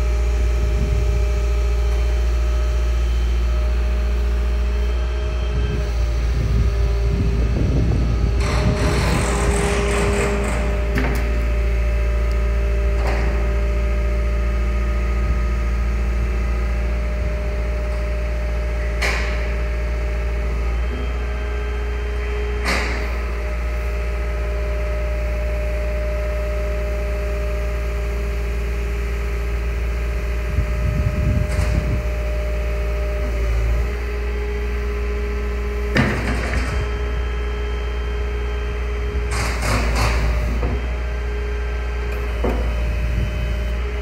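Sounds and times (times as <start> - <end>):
diesel engine running: 0.0 - 44.0
hydraulic whine: 0.0 - 44.0
short rumble: 5.4 - 13.5.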